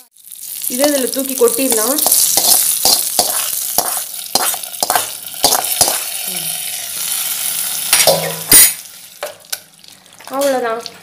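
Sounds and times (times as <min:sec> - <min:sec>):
hot oil sizzling: 0:00.0 - 0:11.0
metal spoon scraping a pan: 0:02.0 - 0:09.6.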